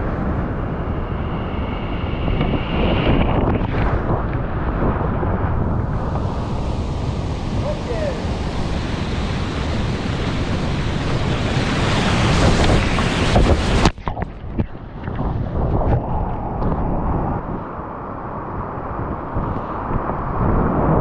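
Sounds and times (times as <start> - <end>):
muffled underwater rushing: 0.0 - 17.5
whitewater rushing: 6.1 - 13.9.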